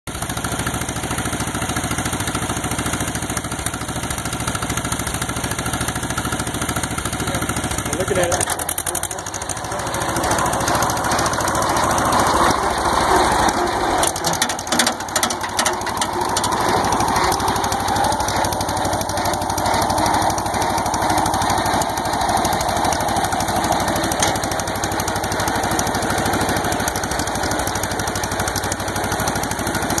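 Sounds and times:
tractor engine pulsing: 0:00.1 - 0:30.0
burst of clatter: 0:10.3 - 0:19.6.

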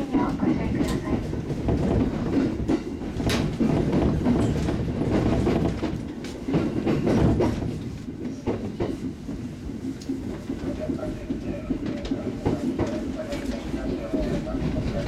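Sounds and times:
train interior low rumble: 0:00.0 - 0:15.0
wheel clacks over rail joints: 0:00.1 - 0:15.0.

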